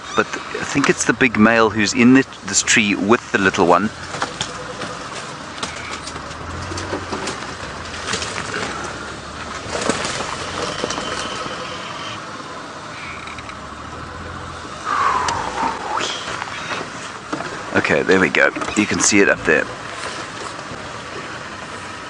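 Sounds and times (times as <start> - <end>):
vehicle engine running low: 0.0 - 22.0
loud falling squeal: 14.8 - 16.7.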